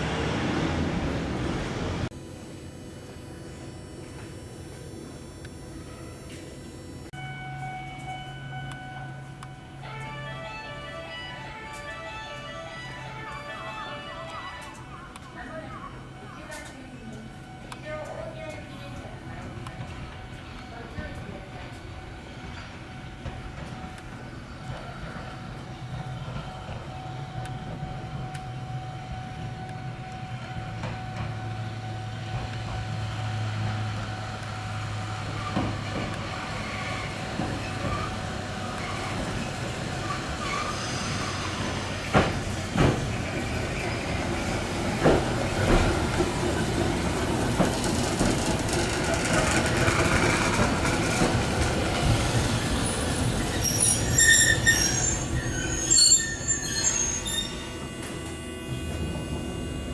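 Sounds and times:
tram running noise: 0:00.0 - 0:59.9
wheels clacking over rail joints: 0:32.2 - 0:56.6
high-pitched wheel squeal: 0:40.0 - 0:41.8, 0:52.8 - 0:58.7.

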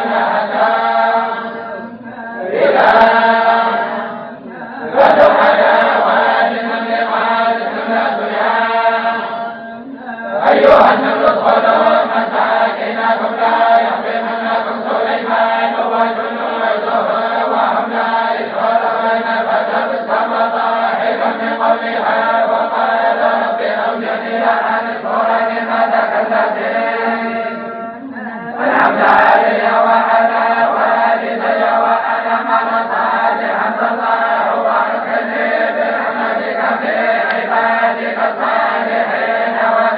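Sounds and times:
group of voices chanting: 0:00.0 - 0:27.7, 0:28.4 - 0:39.9.

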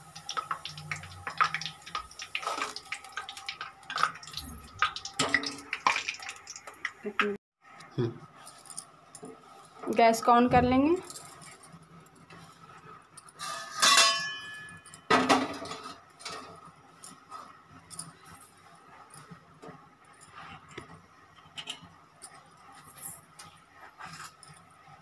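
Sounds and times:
metal pan clanking on burner grate: 0:13.4 - 0:16.5.

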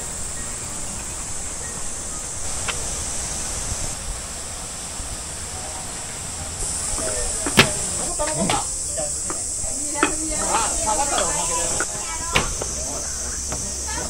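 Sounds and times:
high hiss: 0:00.0 - 0:14.0
wind-like rush: 0:00.0 - 0:14.0.

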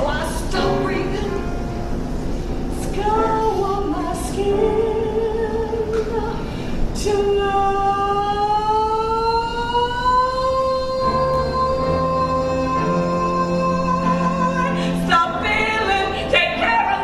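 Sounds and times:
woman singing: 0:00.0 - 0:01.6, 0:02.8 - 0:17.0.

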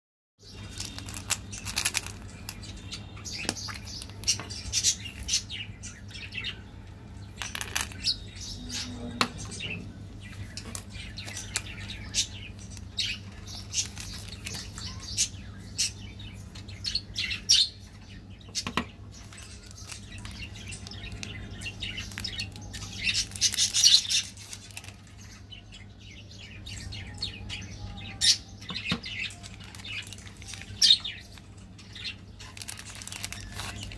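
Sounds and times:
plastic wrappers crinkling: 0:00.4 - 0:05.5, 0:07.4 - 0:08.1, 0:10.4 - 0:15.1, 0:19.2 - 0:25.5, 0:29.2 - 0:33.9
steady low hum: 0:00.4 - 0:33.9.

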